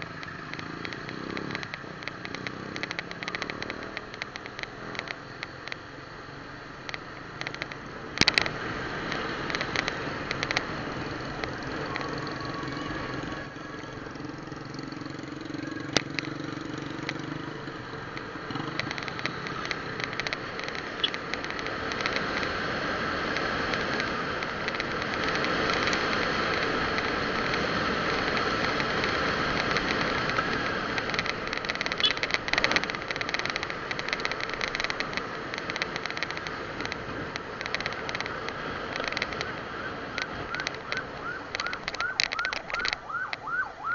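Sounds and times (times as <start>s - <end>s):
sharp click: 0.0s - 5.9s, 6.8s - 10.8s, 18.1s - 43.6s
vehicle engine hum: 0.0s - 43.9s
wind and road noise: 0.0s - 43.9s.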